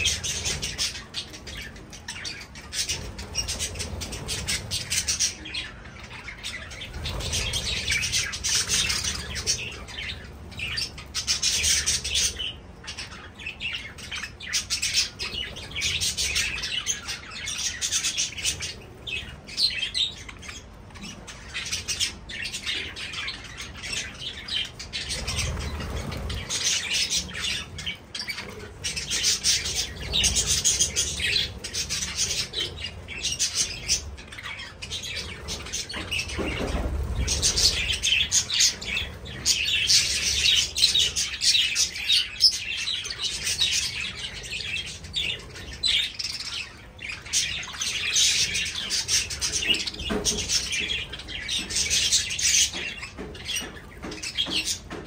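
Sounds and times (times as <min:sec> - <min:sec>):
budgerigars chattering and chirping: 0:00.0 - 0:55.0.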